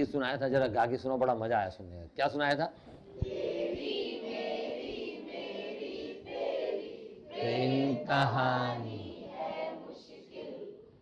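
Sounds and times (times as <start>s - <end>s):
students singing in unison: 3.1s - 11.0s.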